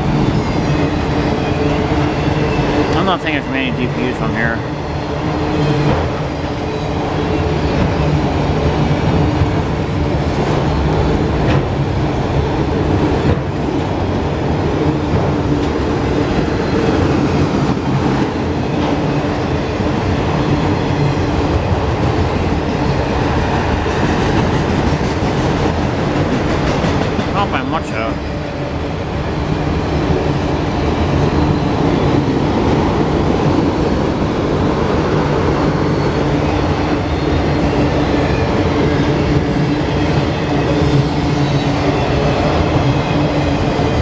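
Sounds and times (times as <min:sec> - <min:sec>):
freight train rumbling past: 0:00.0 - 0:44.0.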